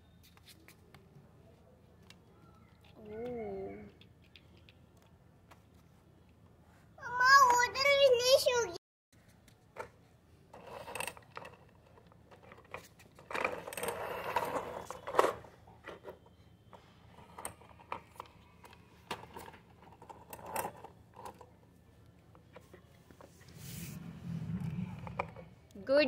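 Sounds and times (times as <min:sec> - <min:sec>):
toy wheels scraping on concrete: 0:10.5 - 0:21.5, 0:22.5 - 0:26.0
cloth rubbing on plastic toy: 0:23.2 - 0:25.4.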